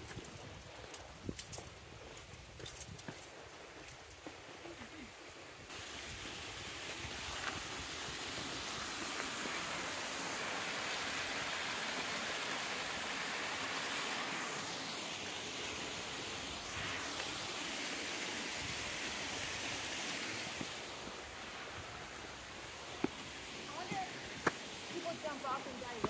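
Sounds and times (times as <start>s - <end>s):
waterfall rushing: 5.7s - 26.0s.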